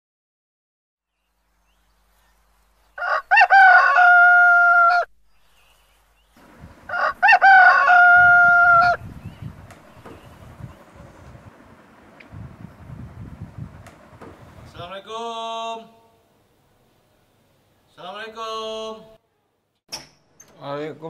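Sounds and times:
rooster crowing: 2.9 - 5.1, 6.8 - 9.0.

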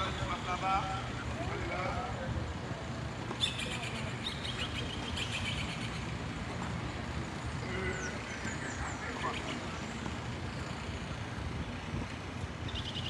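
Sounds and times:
traffic rumble: 0.0 - 13.0
bird rapid chattering call: 3.4 - 6.1.

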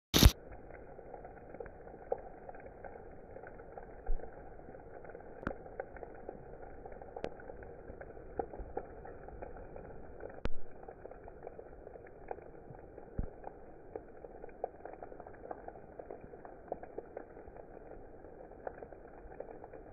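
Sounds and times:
heavy rain hiss: 0.2 - 0.4
hailstones ticking: 0.2 - 19.9.

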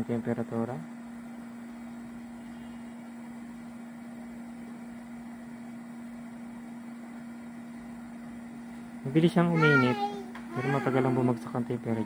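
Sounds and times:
blower fan humming: 0.0 - 12.0.

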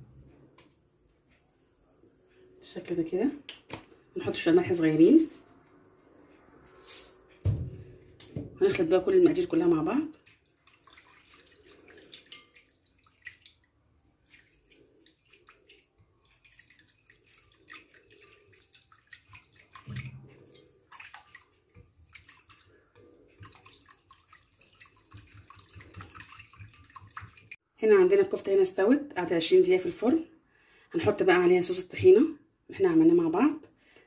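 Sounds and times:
wet sloshing sauce: 9.9 - 27.6.

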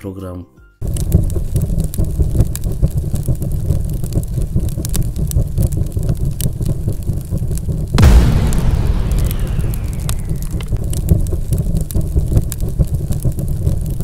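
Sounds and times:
dense fire crackling: 0.8 - 14.0
deep rumble: 8.0 - 12.4.

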